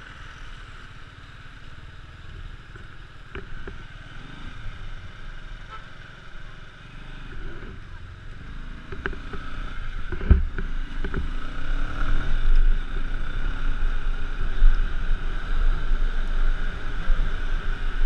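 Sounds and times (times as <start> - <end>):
motorcycle engine drone: 0.0 - 18.0
wind rumble on microphone: 8.8 - 18.0.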